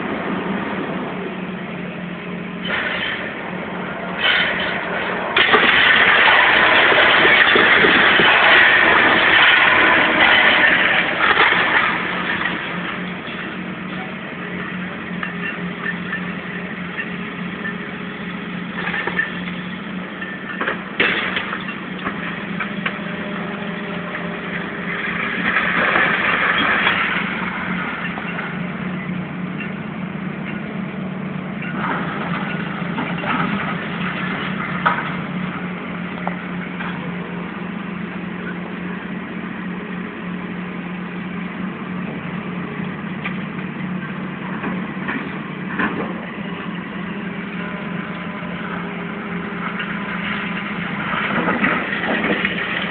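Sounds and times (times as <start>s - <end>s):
loud rush of noise: 0.0s - 15.5s
heavy machinery engine running: 0.0s - 52.9s.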